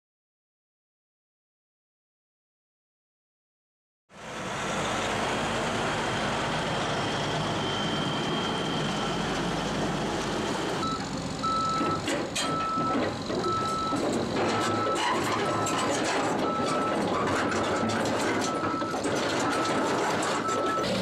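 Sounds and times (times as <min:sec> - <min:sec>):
heavy engine noise: 0:04.1 - 0:21.0
backup alarm beeping: 0:10.8 - 0:15.7, 0:16.4 - 0:17.7, 0:18.4 - 0:20.9.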